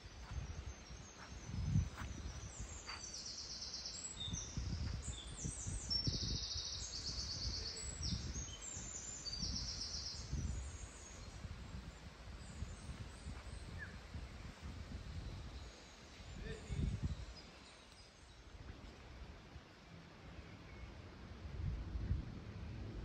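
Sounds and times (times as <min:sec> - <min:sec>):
songbirds trilling: 0:00.0 - 0:18.4.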